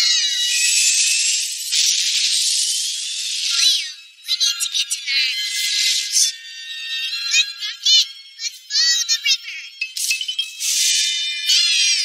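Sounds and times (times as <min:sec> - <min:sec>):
cartoon music with high notes: 0:03.4 - 0:12.0.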